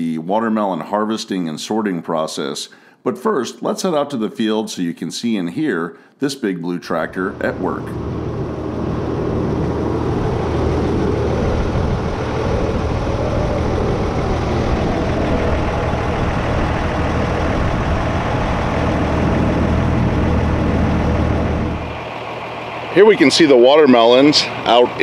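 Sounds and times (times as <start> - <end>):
tractor diesel engine running: 7.2 - 25.0.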